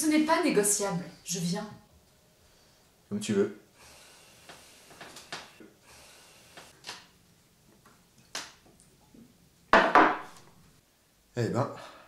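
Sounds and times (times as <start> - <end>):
small objects knocking on table: 9.7 - 10.5.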